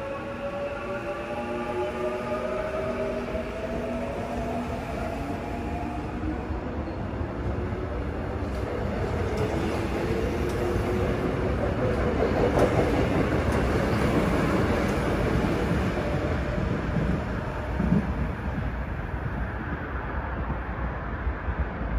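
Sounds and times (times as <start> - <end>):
train wheels rumbling on rails: 0.0 - 21.9.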